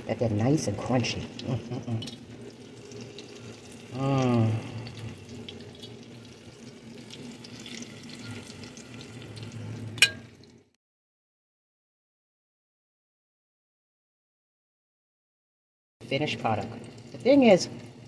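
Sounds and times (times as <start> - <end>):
oil sizzling in a skillet: 0.0 - 10.7
short wordless voice: 3.9 - 5.0
sharp clink: 10.0 - 10.3.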